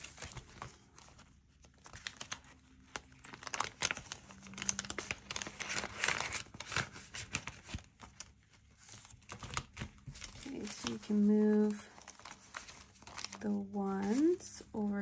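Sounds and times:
plastic pocket crinkling: 0.0s - 14.5s
paper bills rustling: 0.0s - 15.0s.

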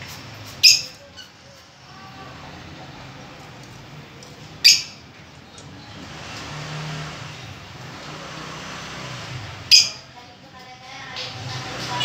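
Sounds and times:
low rumble of traffic: 0.0s - 12.0s
lovebirds chirping shrilly: 0.5s - 1.4s, 4.6s - 5.1s, 9.6s - 10.1s.

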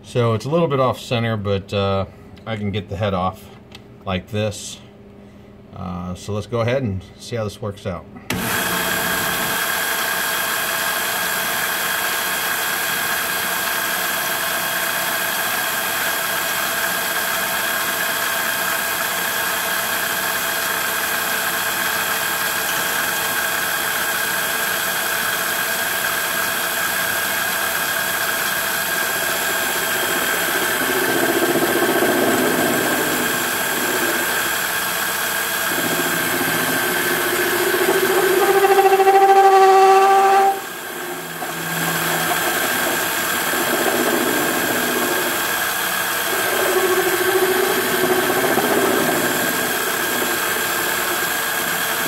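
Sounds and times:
lathe whining: 8.3s - 52.0s.

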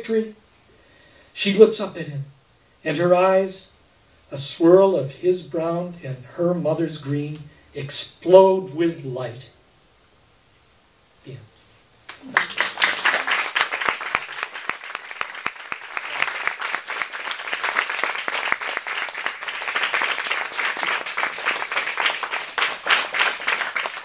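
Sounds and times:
audience applauding: 12.1s - 24.0s.

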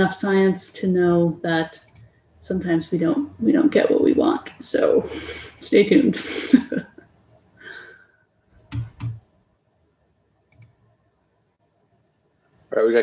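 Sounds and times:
computer mouse clicks: 1.8s - 2.1s, 8.6s - 9.2s, 10.5s - 10.8s.

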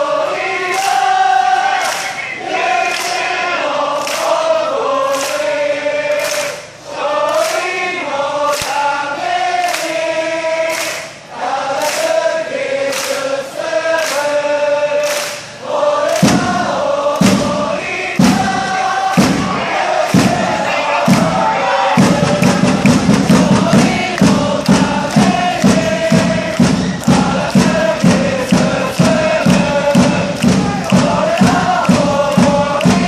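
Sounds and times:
crowd singing a chant: 0.0s - 33.0s
crowd clapping in time: 0.6s - 33.0s
deep thumps: 16.2s - 33.0s.

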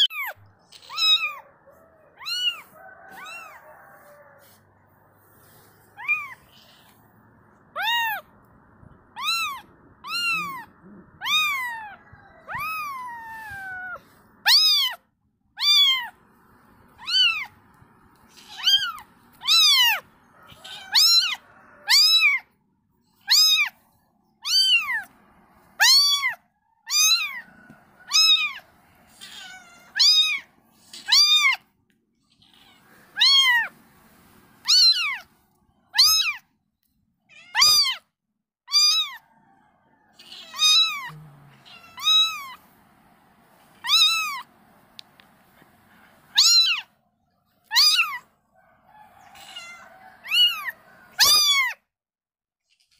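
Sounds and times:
kitten meowing: 0.0s - 1.4s, 2.2s - 3.6s, 6.0s - 7.0s, 7.7s - 8.3s, 9.1s - 15.0s, 15.6s - 16.2s, 17.0s - 17.6s, 18.2s - 22.4s, 23.2s - 23.8s, 24.4s - 25.1s, 25.8s - 27.4s, 28.1s - 31.6s, 32.4s - 33.7s, 34.6s - 35.3s, 36.0s - 36.4s, 37.3s - 38.0s, 38.7s - 39.2s, 40.2s - 42.6s, 43.8s - 44.5s, 46.3s - 46.9s, 47.7s - 48.2s, 49.3s - 51.8s.

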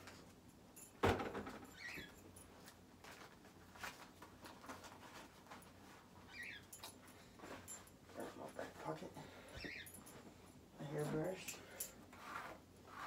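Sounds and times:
rustling and light scratching: 1.8s - 13.0s.

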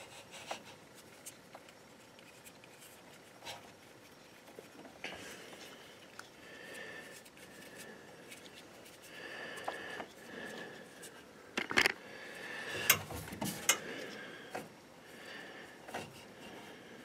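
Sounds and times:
hands rustling plastic wiring: 0.0s - 12.0s.

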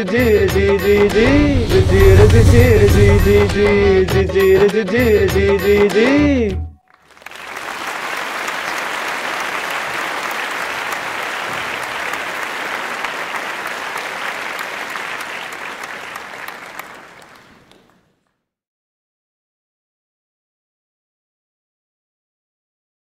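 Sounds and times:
crowd applauding: 6.9s - 18.1s.

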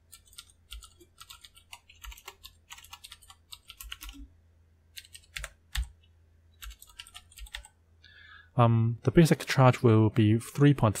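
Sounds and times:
computer keyboard typing: 0.1s - 4.3s, 4.9s - 7.7s.

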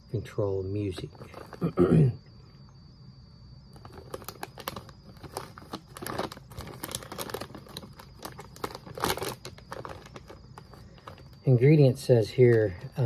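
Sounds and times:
foil chip bag crinkling: 1.1s - 1.8s, 3.7s - 11.5s.

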